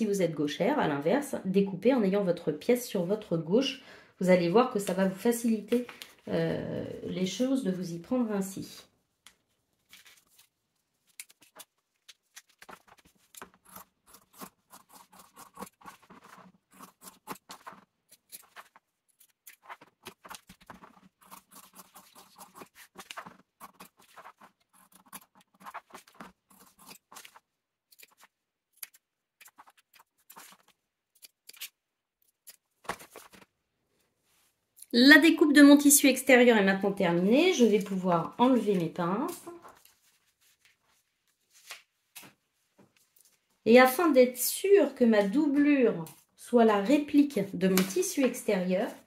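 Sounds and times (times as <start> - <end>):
scissors snipping fabric: 13.3 - 32.7.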